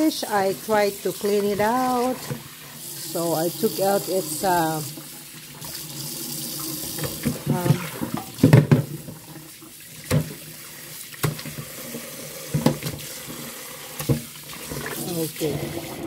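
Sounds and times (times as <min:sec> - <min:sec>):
tap water running into bowl: 0:00.0 - 0:16.0
knocks and splashes in sink: 0:06.8 - 0:10.5, 0:11.1 - 0:11.7, 0:12.5 - 0:13.4, 0:14.0 - 0:16.0.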